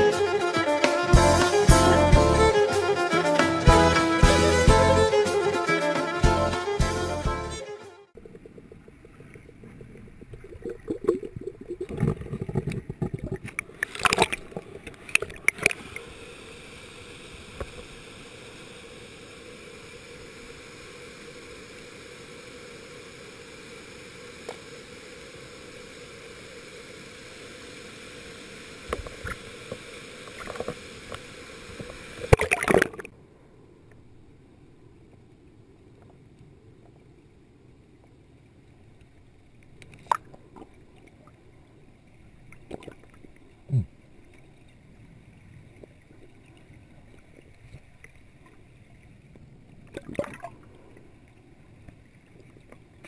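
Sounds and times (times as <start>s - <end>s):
muffled underwater hiss: 0.0s - 7.1s, 7.7s - 34.1s
water rushing: 0.0s - 33.1s.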